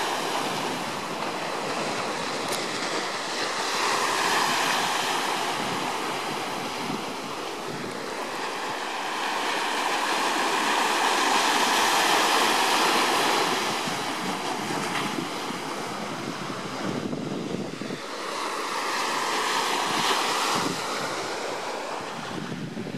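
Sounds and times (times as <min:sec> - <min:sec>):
small waves breaking on beach: 0:00.0 - 0:22.9.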